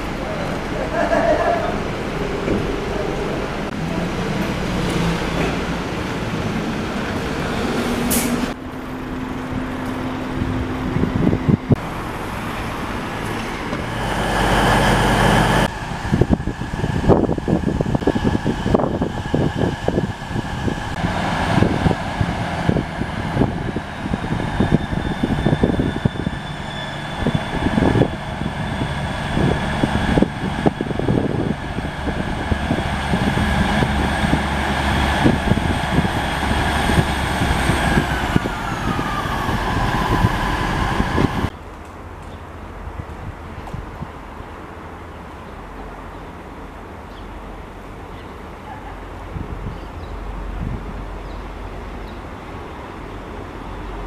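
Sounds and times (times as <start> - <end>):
bus engine running: 0.0 - 41.5
train whine: 0.0 - 41.5
diesel train rolling slowly: 0.0 - 54.0.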